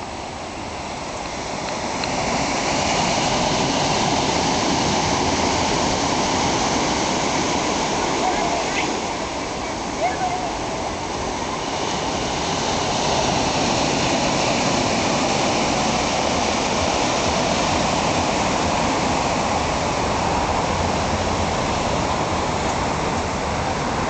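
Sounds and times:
surf breaking on beach: 0:00.0 - 0:24.0.

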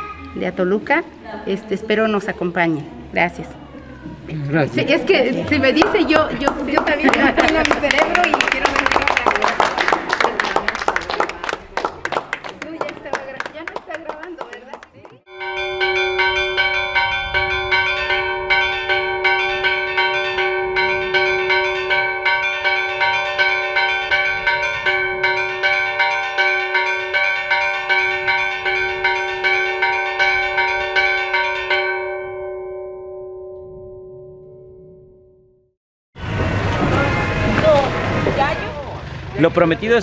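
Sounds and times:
church bells pealing: 0:15.3 - 0:35.3, 0:36.2 - 0:40.0.

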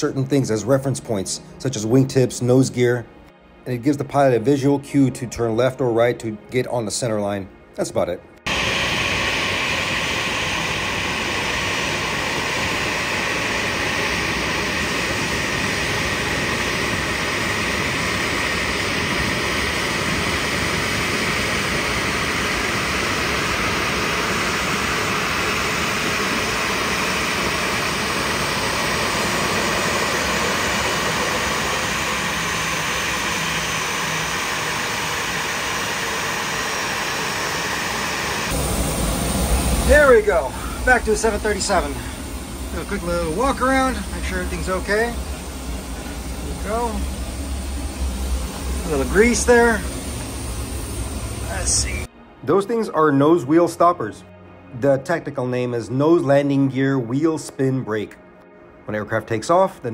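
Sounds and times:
jet turbine rushing hiss: 0:08.4 - 0:52.1.

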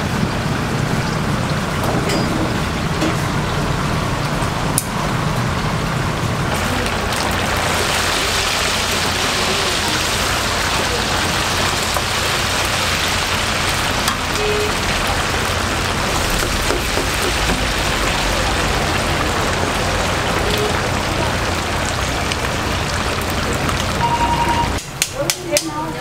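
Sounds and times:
hot oil sizzling and bubbling: 0:00.0 - 0:26.0.

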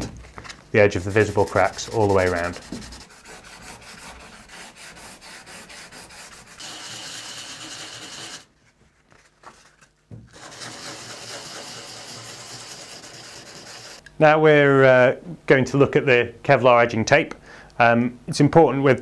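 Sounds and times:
sandpaper rasping on hull: 0:00.8 - 0:08.4, 0:10.4 - 0:14.0.

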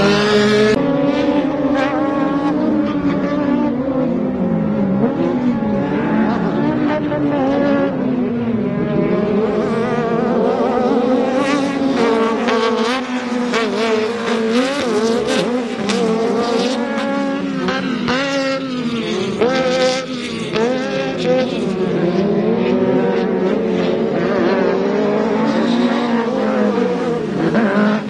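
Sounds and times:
race truck engines revving: 0:00.0 - 0:28.0.

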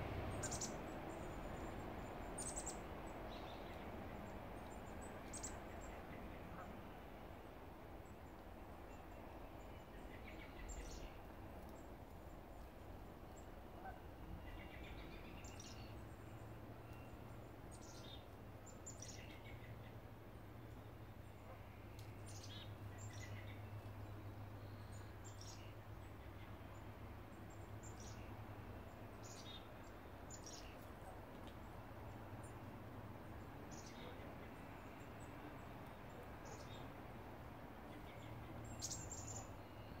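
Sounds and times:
low background hum: 0:00.0 - 0:40.0
chickadees calling: 0:00.4 - 0:00.8.

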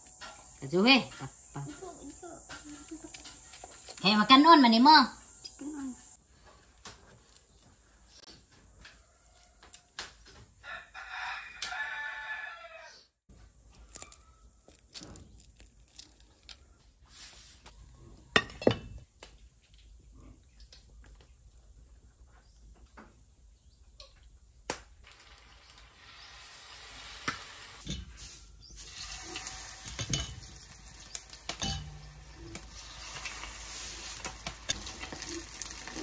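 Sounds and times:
frying in hot oil: 0:00.0 - 0:06.2, 0:24.7 - 0:36.0
rooster crowing: 0:08.8 - 0:10.0, 0:10.6 - 0:13.1
chopsticks stirring in metal bowl: 0:28.8 - 0:36.0.

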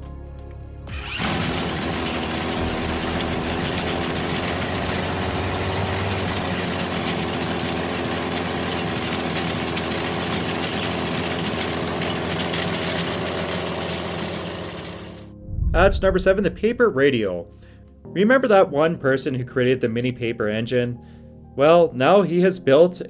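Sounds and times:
model engine running: 0:00.9 - 0:15.3.

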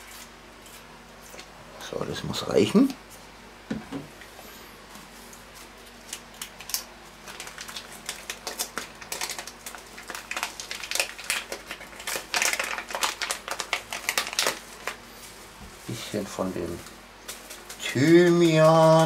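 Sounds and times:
plastic packet crinkling: 0:06.1 - 0:15.0.

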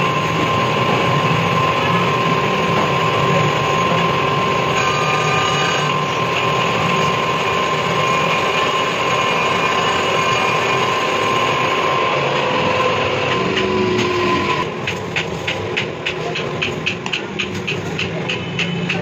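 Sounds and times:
metal lathe cutting steel: 0:00.0 - 0:14.8
constant high whine: 0:00.0 - 0:19.0.

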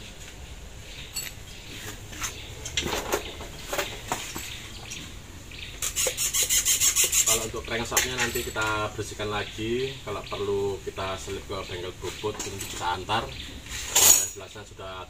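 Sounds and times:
metal engine parts clinking: 0:01.1 - 0:01.5, 0:07.8 - 0:08.9, 0:12.3 - 0:13.0, 0:13.8 - 0:14.6.

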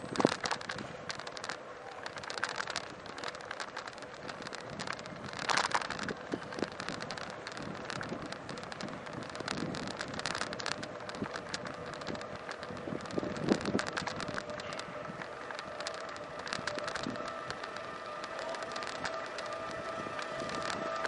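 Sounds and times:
bicycle rattling on pavement: 0:00.0 - 0:21.0
wind on microphone: 0:02.9 - 0:21.0.

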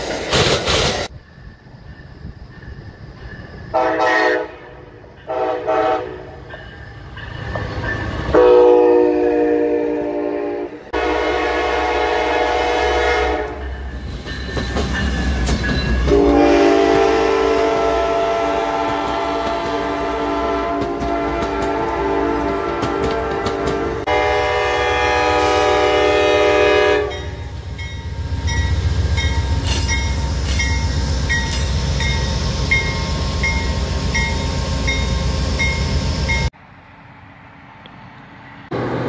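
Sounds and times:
train horn blasts: 0:03.7 - 0:06.4, 0:08.3 - 0:13.7, 0:16.0 - 0:27.6.

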